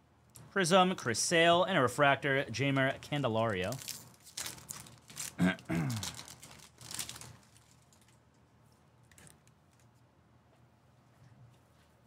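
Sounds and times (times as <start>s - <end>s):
foil wrapper crinkling: 2.6s - 8.3s.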